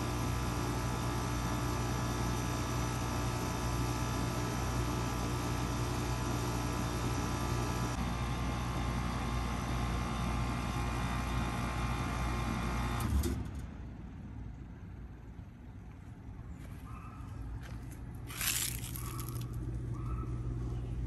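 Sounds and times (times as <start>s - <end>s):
heat pump humming: 0.0s - 13.1s, 17.6s - 21.0s.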